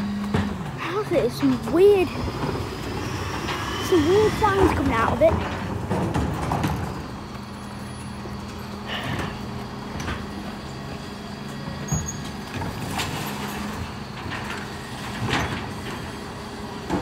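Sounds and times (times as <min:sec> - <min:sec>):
lorry engine humming: 0:00.0 - 0:17.0
bins knocking and clattering: 0:00.2 - 0:07.1.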